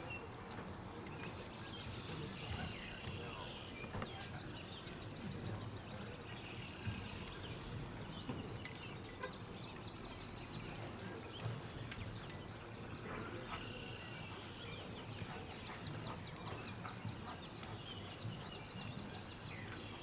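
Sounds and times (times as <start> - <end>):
birds chirping and trilling: 0.0 - 20.0.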